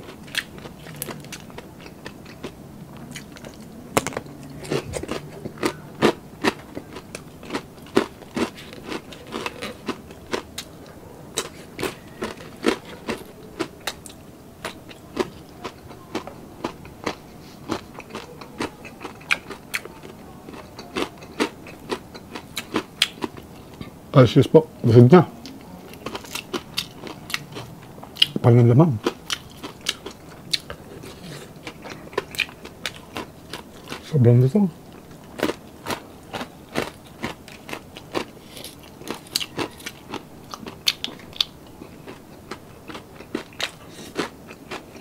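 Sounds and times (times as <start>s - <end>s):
chewing crispy food: 0.0s - 23.9s, 25.4s - 45.0s.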